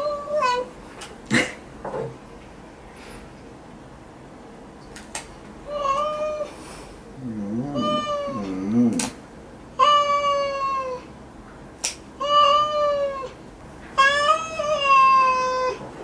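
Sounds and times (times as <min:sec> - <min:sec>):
cat low moan: 0:05.7 - 0:09.2, 0:09.8 - 0:11.1, 0:14.0 - 0:15.9
cat meowing: 0:07.3 - 0:09.0, 0:14.0 - 0:15.8.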